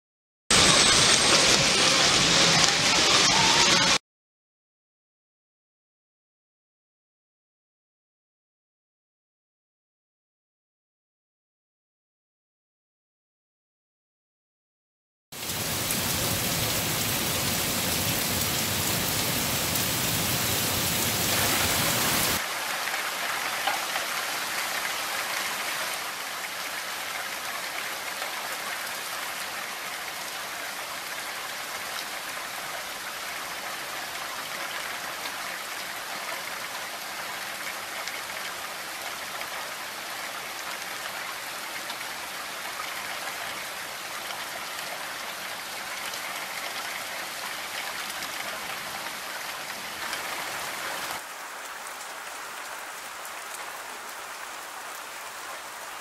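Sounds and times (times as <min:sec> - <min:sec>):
steady rainfall: 0:00.5 - 0:04.0, 0:15.4 - 0:56.0.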